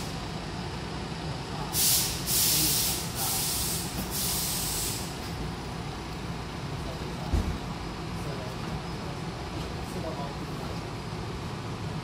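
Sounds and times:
idling train hum: 0:00.0 - 0:12.0
compressed air hisses: 0:01.7 - 0:05.2.

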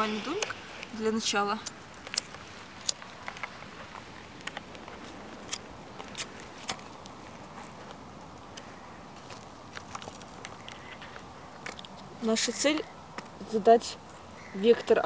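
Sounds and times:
dry kindling clicking and snapping: 0:01.6 - 0:12.1.

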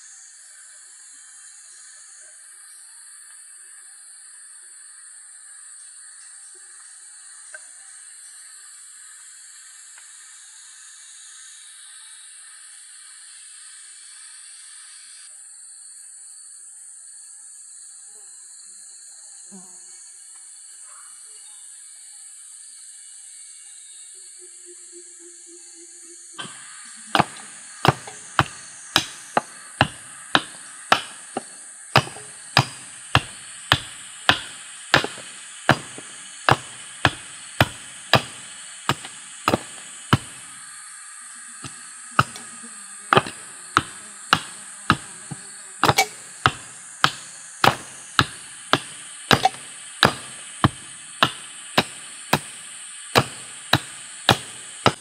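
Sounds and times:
hatchet chopping wood: 0:26.4 - 0:40.6, 0:41.6 - 0:42.5, 0:43.1 - 0:55.0.

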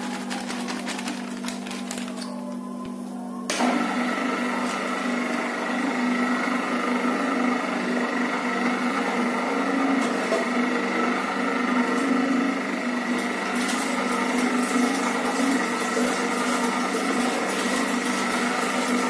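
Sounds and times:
electric mixer motor humming: 0:00.0 - 0:19.0.

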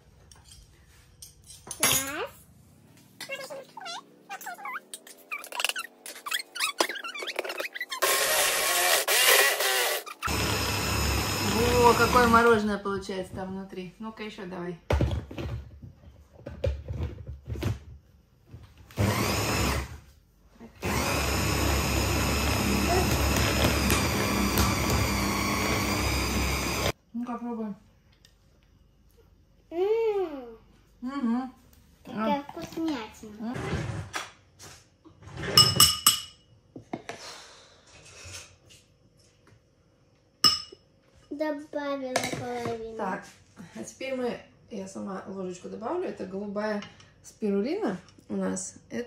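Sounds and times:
hand blender chopping: 0:07.9 - 0:12.4, 0:18.9 - 0:19.9, 0:20.8 - 0:27.0
spoon clinking on ceramic bowl: 0:35.6 - 0:36.4, 0:40.4 - 0:40.8.

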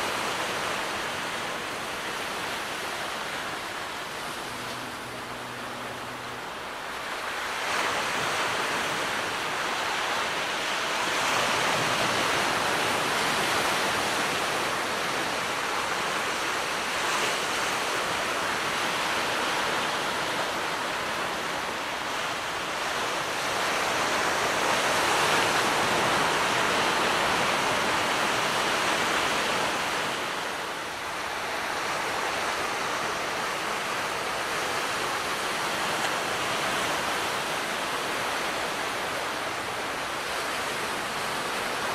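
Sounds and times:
small waves hissing on beach: 0:00.0 - 0:41.9.

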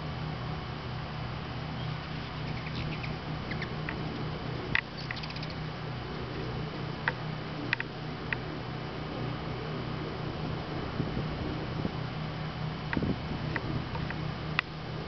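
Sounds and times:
steady low hum: 0:00.0 - 0:15.0
hummingbird chip calls: 0:01.6 - 0:10.0.

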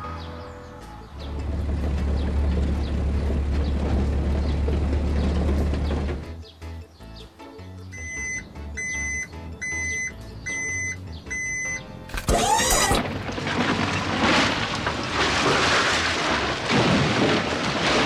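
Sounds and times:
truck bed clunk: 0:01.4 - 0:06.4
dirt pouring out: 0:12.2 - 0:18.0.

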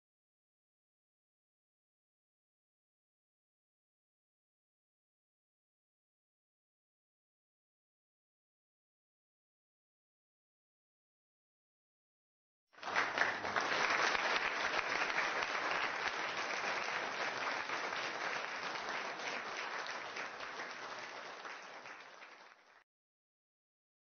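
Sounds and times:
crowd applauding: 0:12.8 - 0:22.8.

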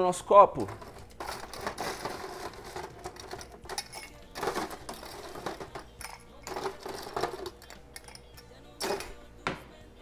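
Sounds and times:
ice cubes clinking in glass: 0:00.8 - 0:08.4.

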